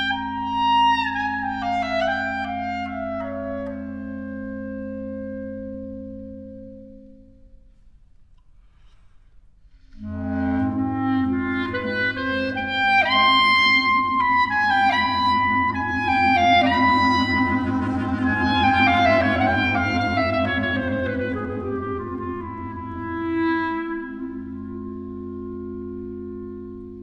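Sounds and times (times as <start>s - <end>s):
clarinet quartet playing: 10.0s - 27.0s.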